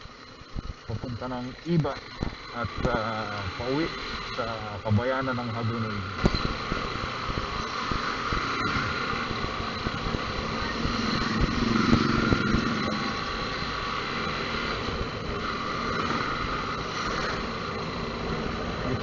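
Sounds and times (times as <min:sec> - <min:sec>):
motorcycle engine running: 0:00.0 - 0:19.0
road noise: 0:00.0 - 0:19.0.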